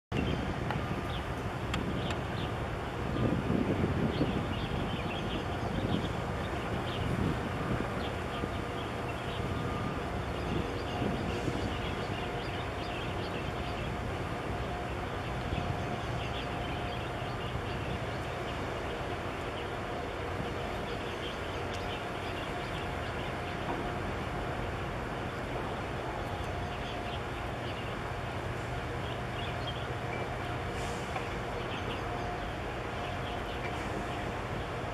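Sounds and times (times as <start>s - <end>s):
constant wash of noise: 0.1s - 34.9s
ship engine drone: 0.2s - 34.9s.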